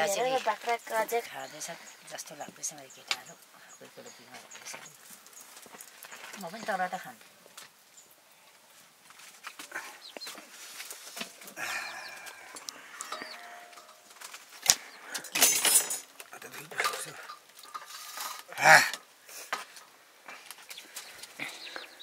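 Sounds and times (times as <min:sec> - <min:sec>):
metal pots clattering and scraping: 0:09.6 - 0:20.4.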